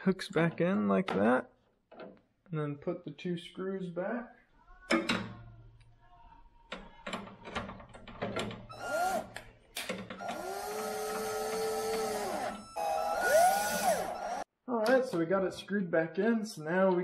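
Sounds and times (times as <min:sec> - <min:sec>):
electric drill motor: 0:08.7 - 0:09.3, 0:10.2 - 0:14.5.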